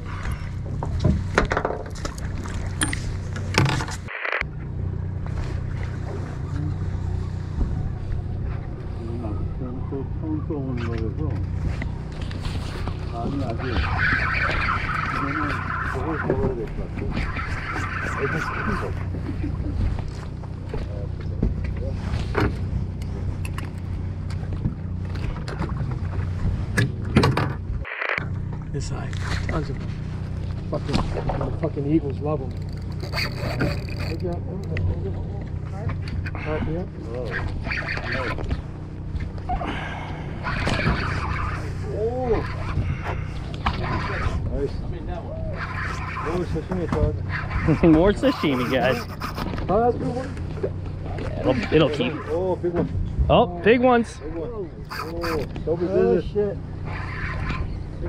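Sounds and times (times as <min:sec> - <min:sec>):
boat engine droning: 0:00.0 - 0:58.0
fishing tackle clicking and rattling: 0:32.4 - 0:34.8.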